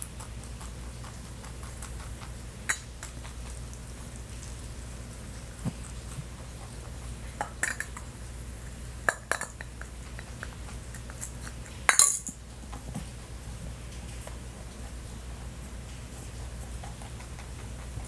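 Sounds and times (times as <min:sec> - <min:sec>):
low steady hum: 0:00.0 - 0:18.0
plastic eggs clinking and knocking: 0:07.4 - 0:08.1, 0:09.1 - 0:09.9.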